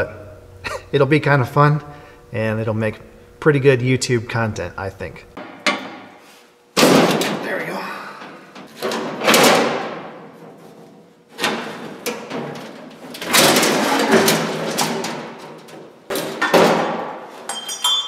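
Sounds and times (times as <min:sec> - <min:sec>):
sheet metal clanks and knocks: 0:05.4 - 0:06.1, 0:06.8 - 0:07.6, 0:08.2 - 0:10.8, 0:11.4 - 0:18.0
metal panel rattling scrape: 0:08.6 - 0:15.8.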